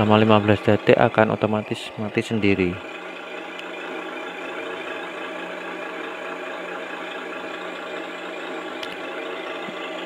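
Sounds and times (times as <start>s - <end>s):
simulated truck engine idling: 0.0s - 10.0s.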